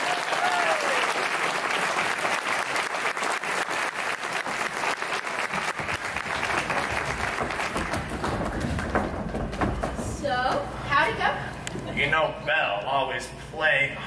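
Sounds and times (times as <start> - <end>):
audience applause: 0.0 - 9.6.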